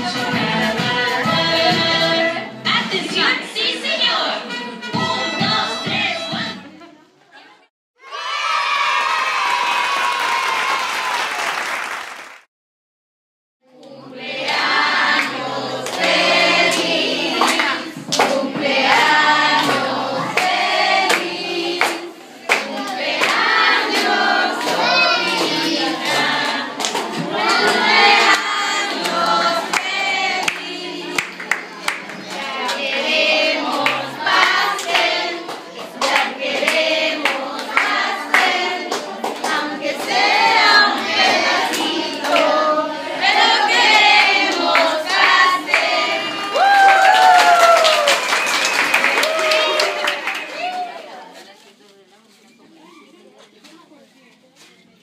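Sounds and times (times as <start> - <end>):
group of voices singing: 0.0 - 4.6, 13.6 - 46.7
children shouting: 8.0 - 11.2, 24.3 - 26.4
crowd cheering: 8.0 - 12.5, 45.1 - 51.3.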